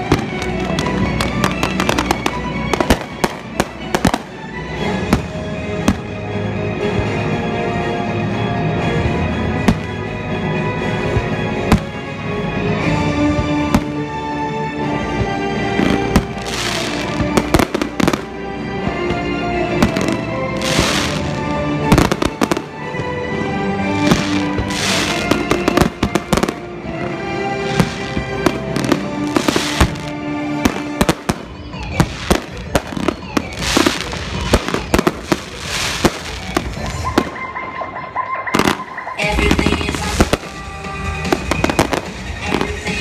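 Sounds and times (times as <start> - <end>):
fireworks bangs: 0.0 - 4.4, 15.8 - 23.1, 23.9 - 37.7, 38.5 - 43.0
music playing: 0.0 - 43.0.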